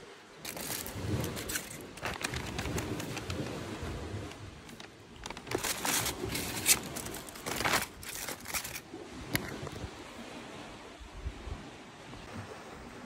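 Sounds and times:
paper bag crinkling and rustling: 0.4s - 8.8s.

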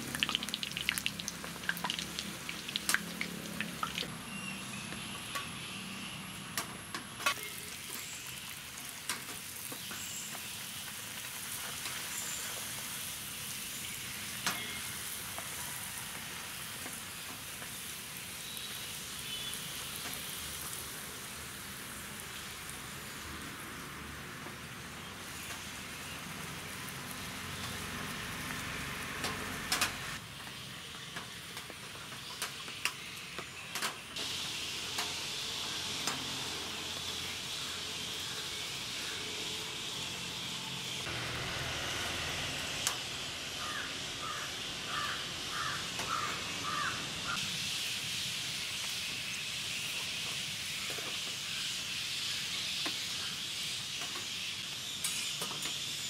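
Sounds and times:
oil sizzling while deep-frying: 0.0s - 56.0s
bird calling: 43.6s - 47.4s.

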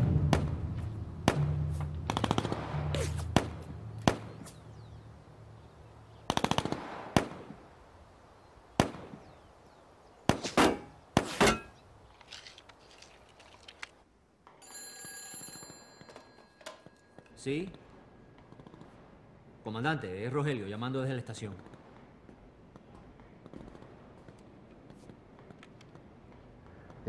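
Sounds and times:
low background music: 0.0s - 6.2s
single gunshots: 1.2s - 4.6s, 6.3s - 7.6s, 8.8s - 9.3s, 10.2s - 11.6s.

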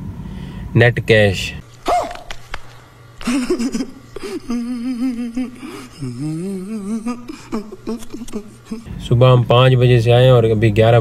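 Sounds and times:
steady low hum: 0.0s - 11.0s
man's breathy noise: 4.2s - 7.8s
man's wordless vocal sounds: 4.4s - 9.0s.

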